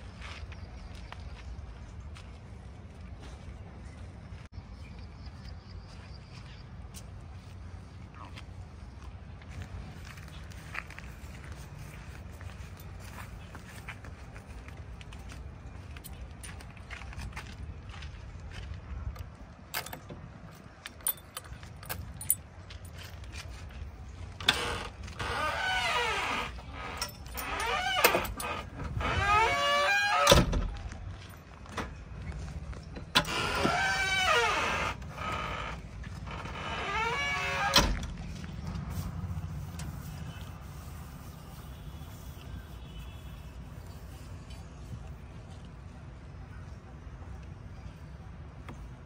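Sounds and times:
low engine rumble: 0.0s - 49.0s
keys jangling in door lock: 21.0s - 22.4s, 27.0s - 28.7s
metal door creaking: 24.4s - 30.8s, 33.0s - 38.2s.

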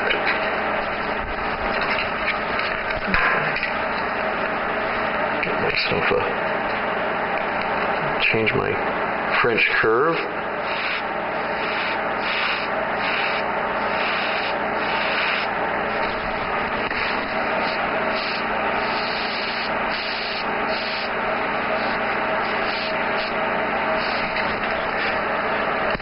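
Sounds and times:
steady low hum: 0.0s - 26.0s
airbrush hissing: 10.6s - 25.2s.

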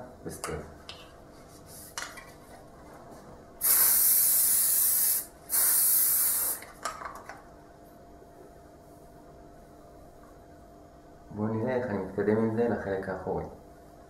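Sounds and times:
aerosol hairspray spraying: 3.6s - 6.6s.

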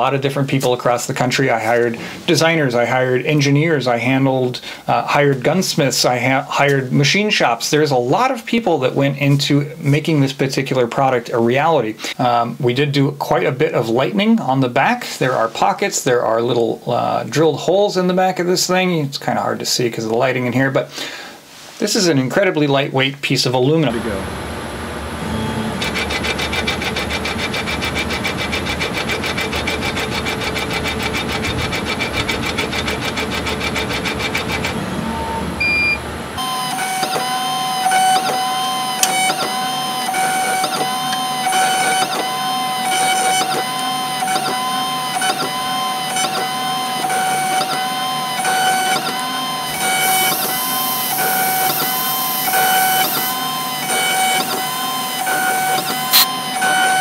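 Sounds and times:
engraving mill pulsing: 23.9s - 57.0s
engraving mill whine: 23.9s - 57.0s.

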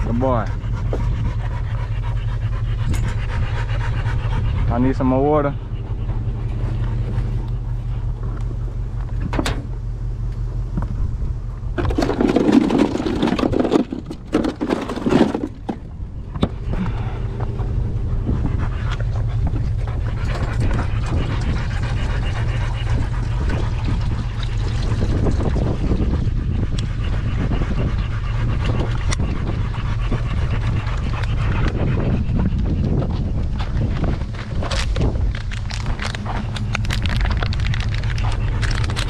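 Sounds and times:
dogs panting: 0.0s - 39.0s
steady low hum: 0.0s - 39.0s
cooler knocks and rattles: 11.8s - 16.6s.

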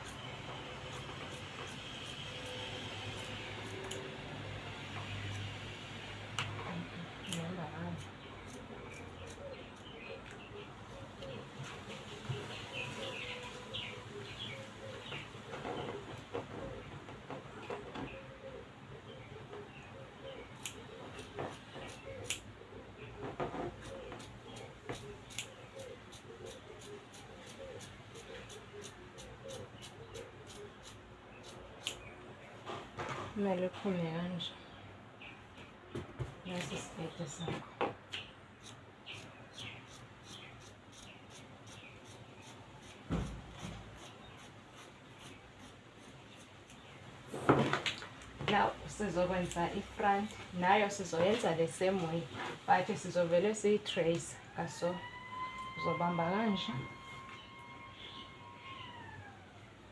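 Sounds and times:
shears snipping fabric: 0.0s - 5.6s, 23.7s - 32.1s, 48.5s - 52.9s
small bird chirping: 38.1s - 47.1s.

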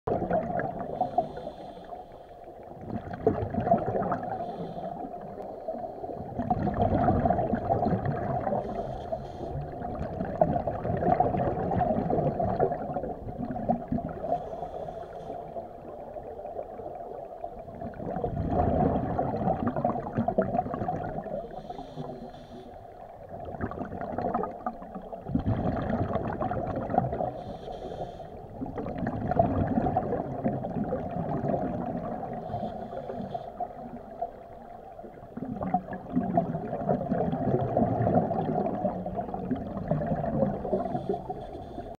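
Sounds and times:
diver exhaling bubbles: 0.1s - 1.6s, 2.8s - 5.3s, 6.2s - 8.9s, 9.5s - 14.7s, 17.7s - 22.0s, 23.4s - 27.5s, 28.6s - 34.0s, 35.3s - 41.9s.

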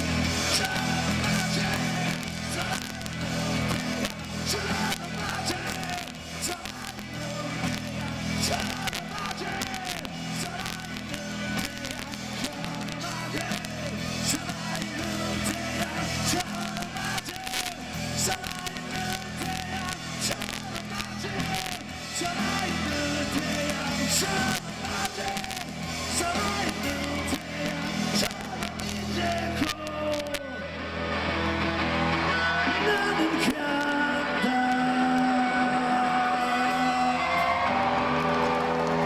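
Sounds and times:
live rock band playing: 0.0s - 39.0s.

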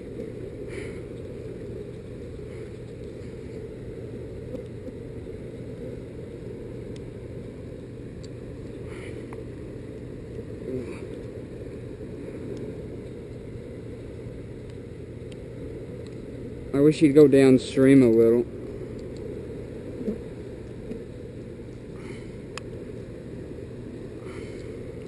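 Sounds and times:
faint ticks: 6.9s - 7.1s, 12.3s - 16.4s, 18.6s - 19.3s.

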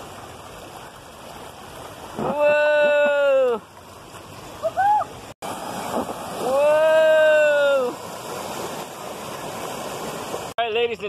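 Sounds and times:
river water rushing: 0.0s - 11.0s
person yelling: 2.2s - 3.6s, 6.4s - 8.0s.

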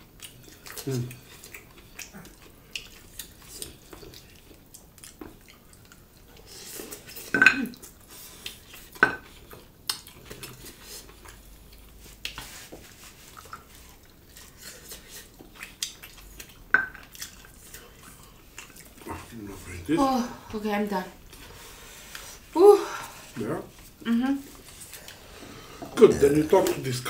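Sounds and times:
plates and cutlery clinking: 7.1s - 7.8s.

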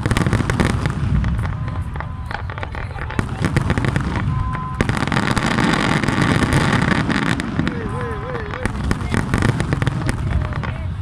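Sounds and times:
fireworks bangs and crackles: 0.0s - 11.0s.

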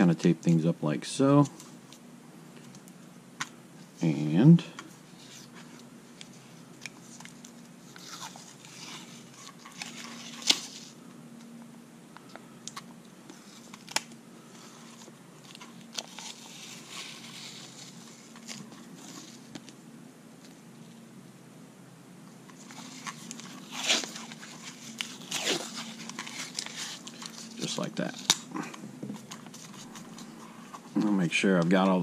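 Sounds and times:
tape rustling and crackling: 1.3s - 21.1s, 22.2s - 32.0s.

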